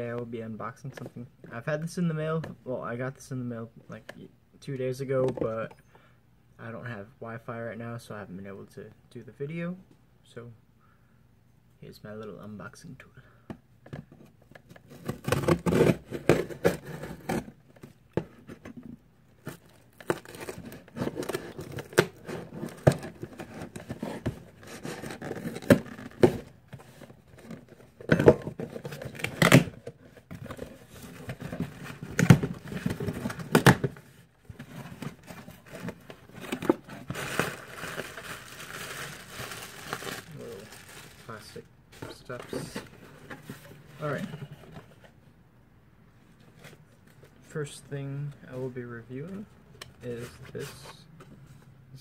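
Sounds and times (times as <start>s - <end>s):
plastic packing crinkling: 19.5s - 29.8s, 35.0s - 41.6s.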